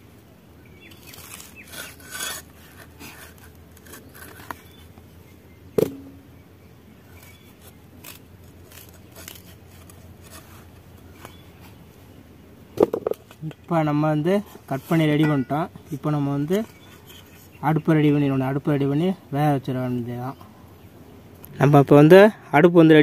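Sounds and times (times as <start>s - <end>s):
knife slicing mango: 7.2s - 11.5s.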